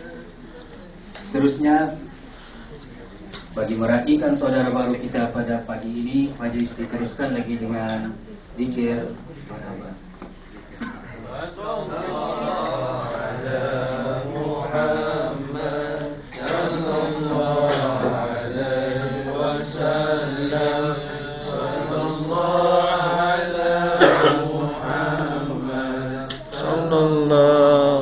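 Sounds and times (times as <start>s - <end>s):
devotional chanting: 10.8s - 28.0s.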